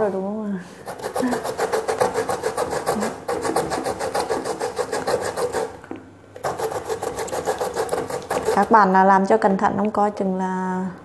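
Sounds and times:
root scraped on metal grater: 0.9 - 5.8, 6.4 - 8.8.

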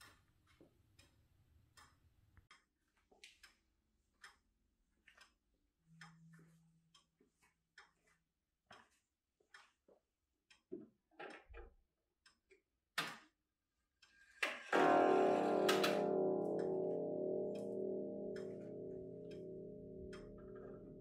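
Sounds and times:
pendulum clock ticking: 0.9 - 2.7, 14.0 - 21.0
clock gong striking: 14.8 - 21.0.

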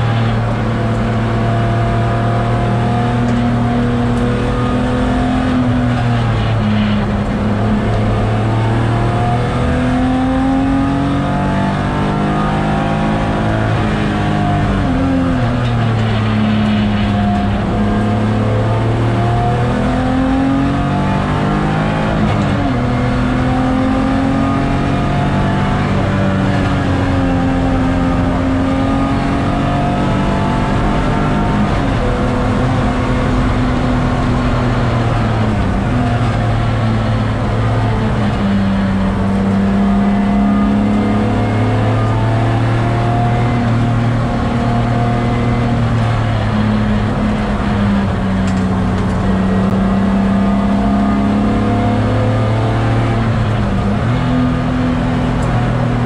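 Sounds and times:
car engine revving: 0.0 - 56.0
road and tyre noise: 0.0 - 56.0.

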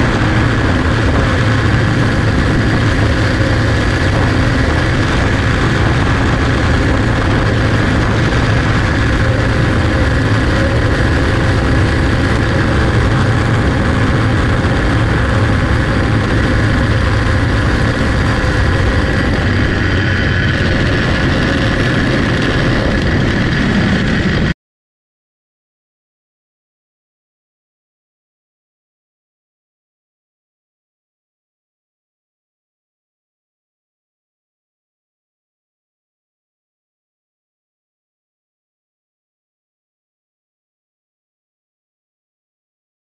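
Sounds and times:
small race car engine running: 0.0 - 24.5.

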